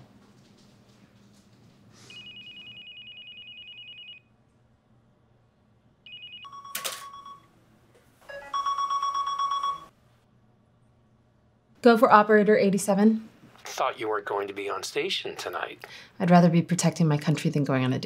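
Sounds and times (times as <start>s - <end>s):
electronic telephone ringing: 2.1s - 4.2s, 6.1s - 7.5s, 8.3s - 9.9s.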